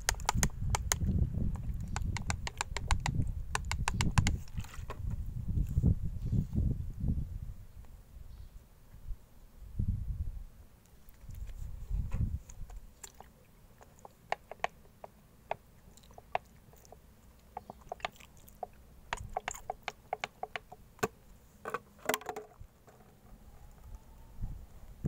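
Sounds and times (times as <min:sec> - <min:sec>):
plastic pots clicking and crackling: 0:00.0 - 0:05.2, 0:12.5 - 0:24.0.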